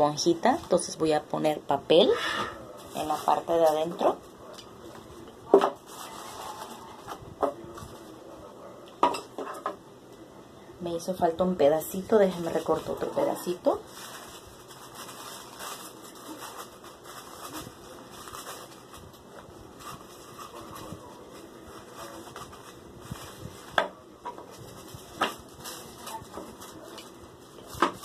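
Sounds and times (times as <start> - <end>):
tissue paper rustling: 2.7 - 4.4, 5.8 - 8.2, 12.0 - 23.8, 24.4 - 28.0.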